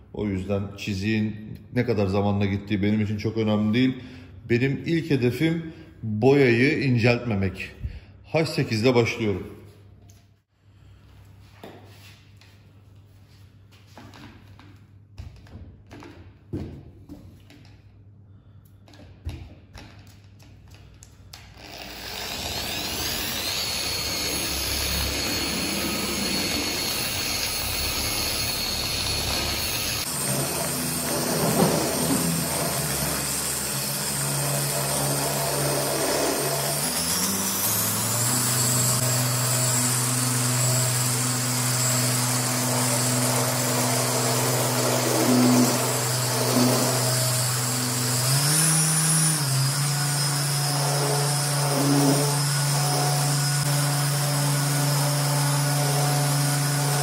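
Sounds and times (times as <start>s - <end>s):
orbital polisher running: 21.6s - 57.0s.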